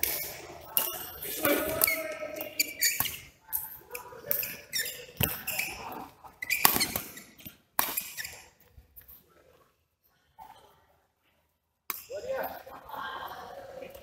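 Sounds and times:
shoes squeaking on court: 0:00.0 - 0:09.2
racket hitting shuttlecock: 0:06.5 - 0:08.2.

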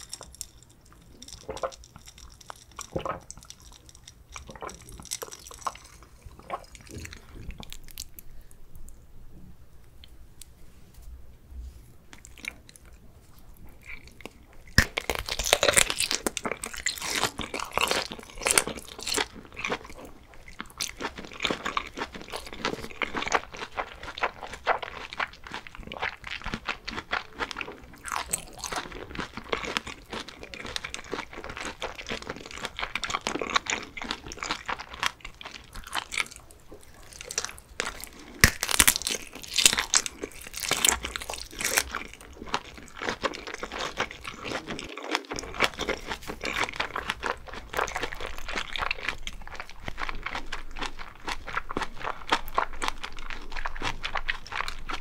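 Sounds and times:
biting and chewing food: 0:00.0 - 0:08.5, 0:12.1 - 0:55.0
crunching crisp skin: 0:13.8 - 0:55.0.

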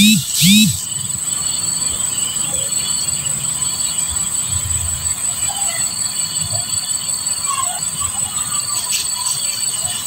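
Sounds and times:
insects buzzing: 0:00.0 - 0:04.5.

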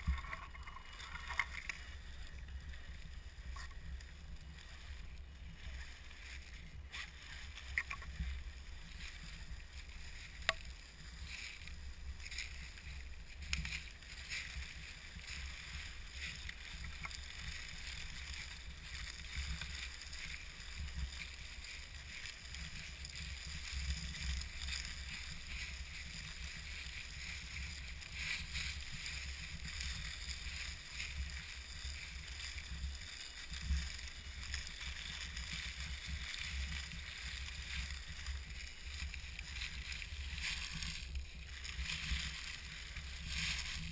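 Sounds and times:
low rumble: 0:00.0 - 0:06.9
tyres crackling through leaves: 0:00.0 - 0:43.9.

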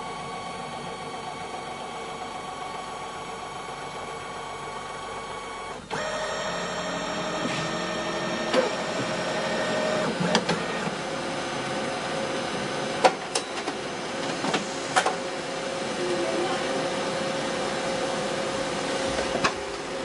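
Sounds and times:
photocopier motor whirring: 0:00.0 - 0:14.3.

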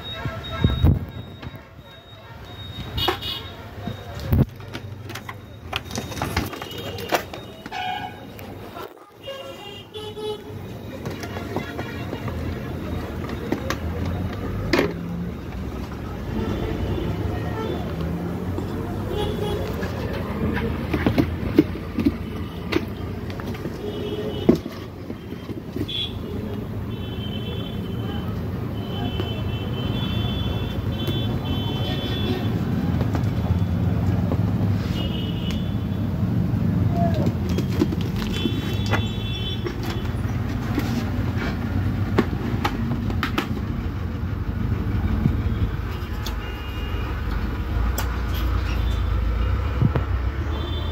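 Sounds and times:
high beeping tones: 0:00.0 - 0:03.0
road traffic rumble: 0:00.0 - 0:50.9.

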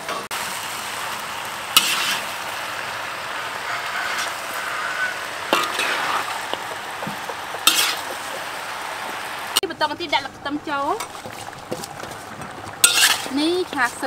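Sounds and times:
food sizzling in a wok: 0:00.0 - 0:14.0
spatula scraping a pan: 0:01.8 - 0:02.3, 0:03.5 - 0:08.6, 0:11.0 - 0:14.0.

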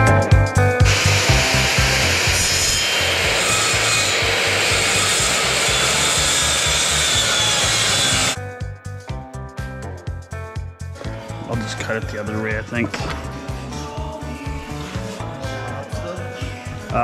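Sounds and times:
background music with a beat: 0:00.0 - 0:02.3, 0:08.4 - 0:17.0
power tool cutting metal: 0:00.8 - 0:08.4.

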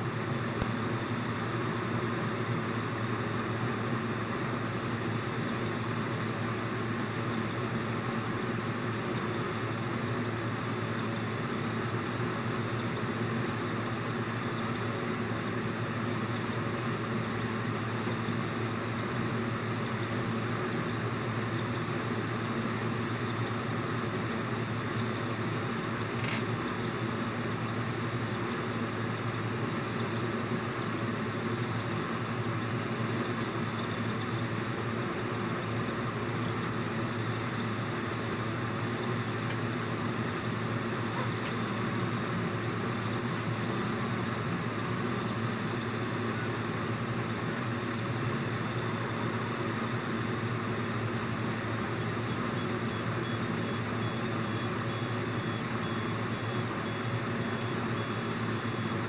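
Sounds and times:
three-d printer whirring: 0:30.9 - 0:59.0.

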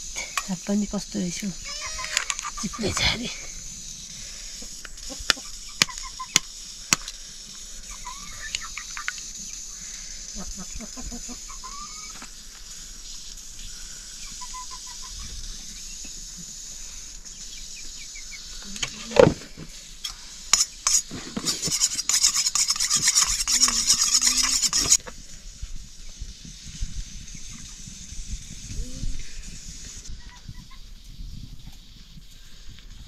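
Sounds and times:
rapid continuous scraping: 0:15.0 - 0:30.1.

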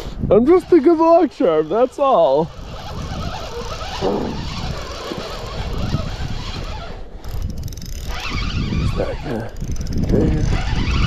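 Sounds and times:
fishing reel being cranked: 0:00.4 - 0:11.0.

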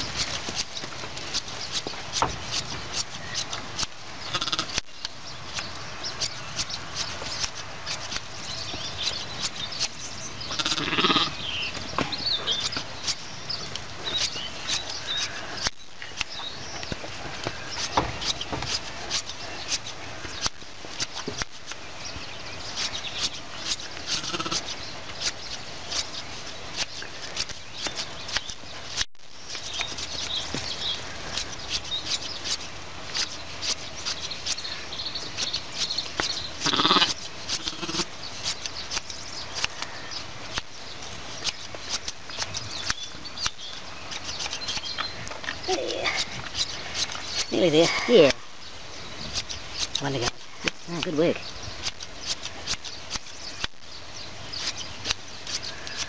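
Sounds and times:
shears snipping fleece: 0:00.0 - 0:21.9, 0:22.7 - 0:48.4, 0:49.2 - 0:53.8, 0:54.5 - 0:56.0
sheep bleating: 0:04.3 - 0:04.8, 0:10.5 - 0:11.4, 0:24.1 - 0:24.6, 0:36.6 - 0:38.1.

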